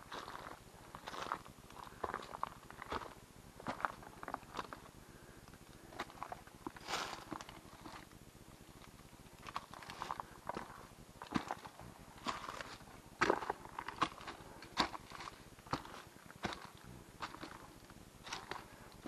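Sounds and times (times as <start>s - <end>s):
dry leaves crackling underfoot: 0.0s - 4.9s, 5.6s - 8.1s, 8.8s - 19.0s
footsteps on leaf-covered steps: 11.3s - 19.0s.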